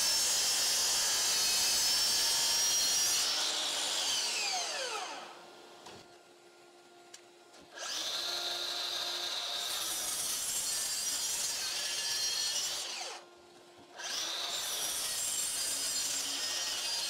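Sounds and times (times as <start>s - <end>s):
saw blade winding down: 0.0s - 5.4s, 7.8s - 13.2s
saw cutting wood: 0.0s - 5.4s, 7.7s - 13.3s, 14.0s - 17.0s
miter saw whining: 0.0s - 5.5s, 7.8s - 13.3s.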